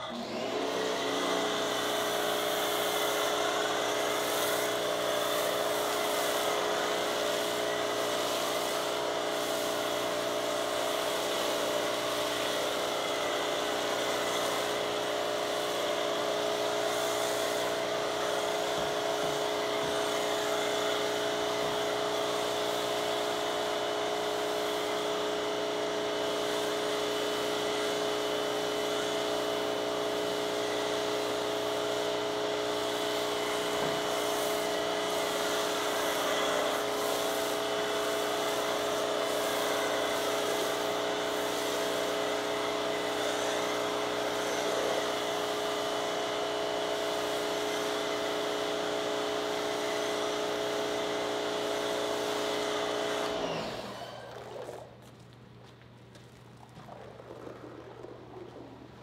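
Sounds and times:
pressure washer motor hum: 0.0s - 59.0s
foam spray hiss: 1.9s - 12.9s.

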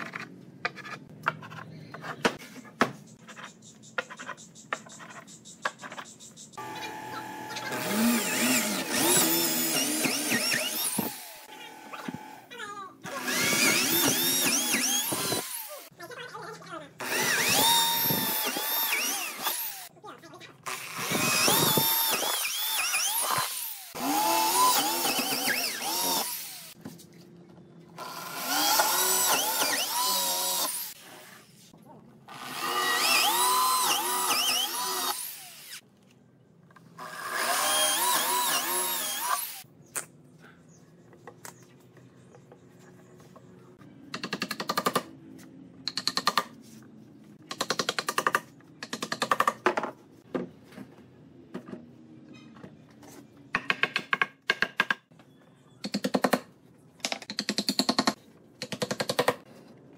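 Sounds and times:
electric drill boring into wood: 6.6s - 12.4s, 13.1s - 15.9s, 17.0s - 19.9s, 20.7s - 26.8s, 28.0s - 31.0s, 32.3s - 35.8s, 37.0s - 39.6s.

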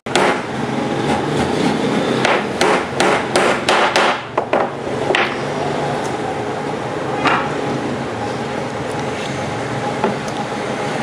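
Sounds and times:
hammer striking nails into wood: 0.1s - 0.4s, 2.2s - 5.3s.

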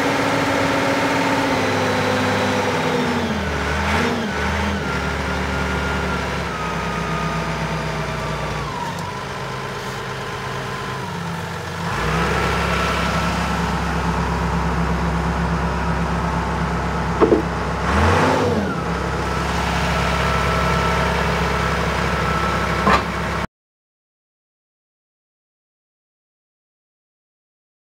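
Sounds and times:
forklift diesel engine running: 0.0s - 23.5s.

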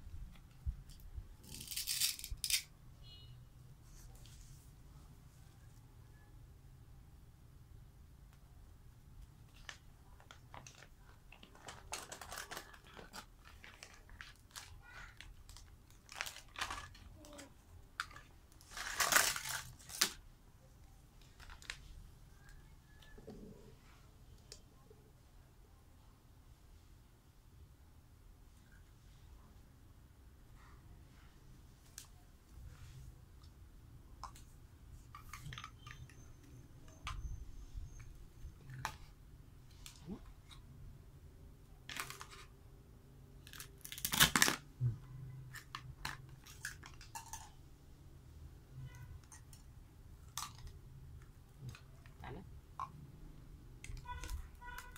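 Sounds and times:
hard plastic pieces clicking: 1.4s - 2.7s
plastic bag crinkling: 9.6s - 20.2s.

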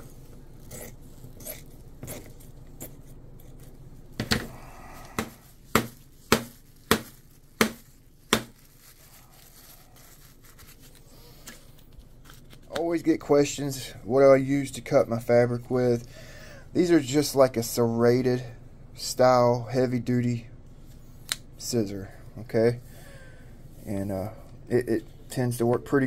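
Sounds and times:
cardboard tube knocking on workbench: 5.2s - 8.5s.

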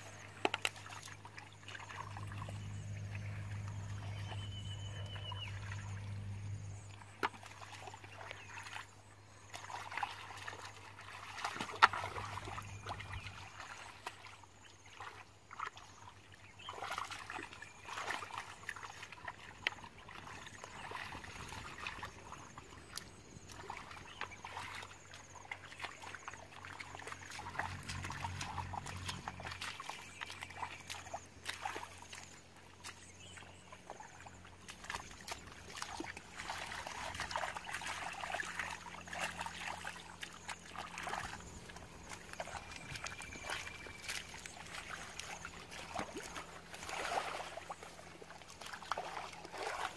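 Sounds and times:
muddy water squelching and splashing: 0.0s - 49.9s.

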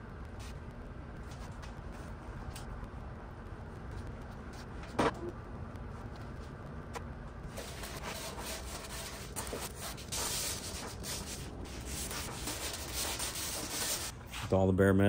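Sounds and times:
sanding block rasping: 7.6s - 14.1s.

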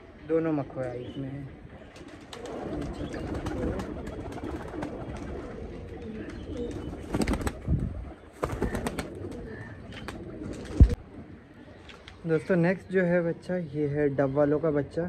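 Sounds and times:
pigeons cooing: 1.5s - 12.0s
pigeon wings flapping: 1.9s - 7.8s, 8.4s - 11.0s.

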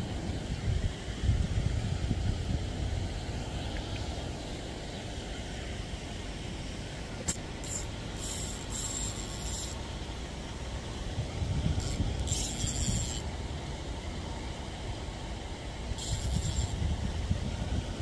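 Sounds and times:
wind rumbling on microphone: 0.0s - 4.7s, 10.9s - 18.0s
bursts of high hiss: 7.2s - 10.1s, 15.8s - 17.1s.

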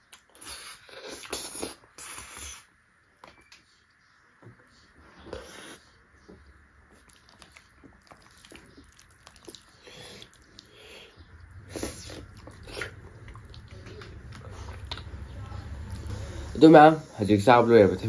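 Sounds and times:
chewing and wet mouth smacks: 0.0s - 2.4s, 6.9s - 10.8s, 11.4s - 15.2s.

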